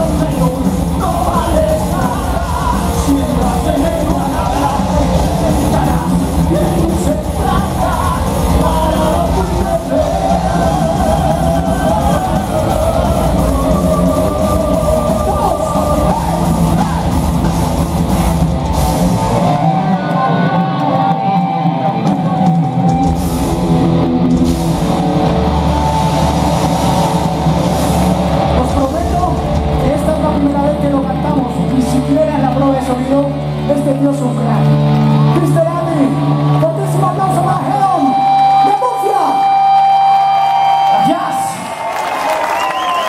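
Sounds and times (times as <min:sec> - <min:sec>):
male lead singer: 0:00.0 - 0:17.8, 0:19.2 - 0:23.1, 0:28.5 - 0:39.8
bass guitar: 0:00.0 - 0:43.0
distorted electric guitars: 0:00.0 - 0:43.0
drums: 0:00.0 - 0:43.0.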